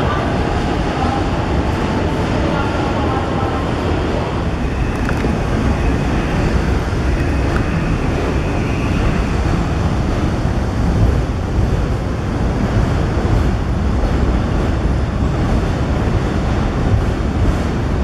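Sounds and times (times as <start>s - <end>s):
subway train rumbling: 0.0s - 18.0s
wind noise on microphone: 0.0s - 18.0s
faint high whine: 4.5s - 10.4s.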